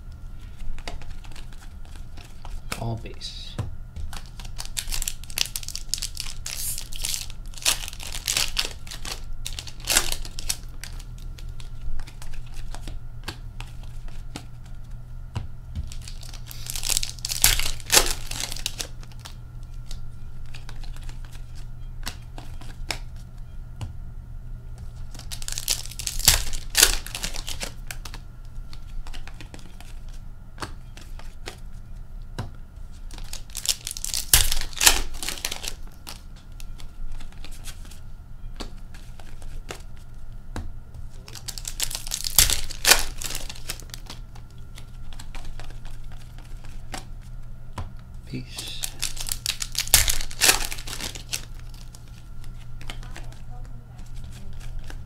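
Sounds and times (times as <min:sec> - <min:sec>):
cards clicking and sliding: 0:00.4 - 0:02.8, 0:04.0 - 0:15.0, 0:24.8 - 0:31.7, 0:32.4 - 0:38.0, 0:41.1 - 0:47.2, 0:48.6 - 0:55.0
foil wrappers tearing and crinkling: 0:04.1 - 0:13.0, 0:15.8 - 0:21.4, 0:25.0 - 0:30.2, 0:32.9 - 0:38.0, 0:41.1 - 0:47.1, 0:48.5 - 0:55.0.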